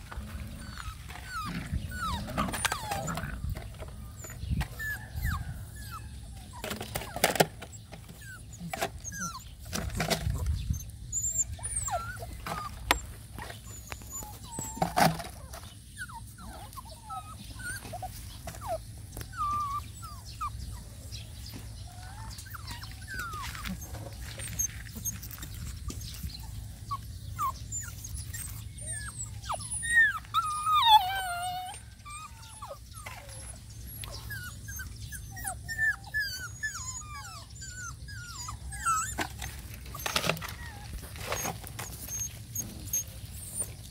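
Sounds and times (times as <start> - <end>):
puppies whimpering: 0.0 - 43.9.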